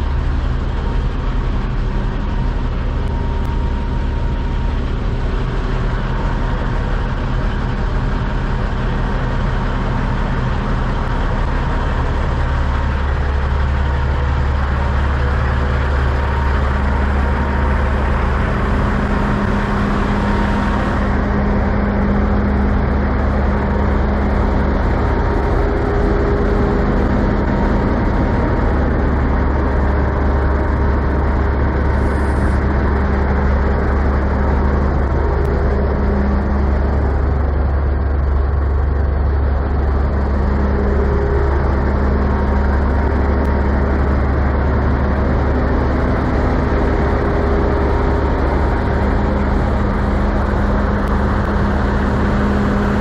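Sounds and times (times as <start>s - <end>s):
truck diesel engines idling: 0.0s - 53.0s.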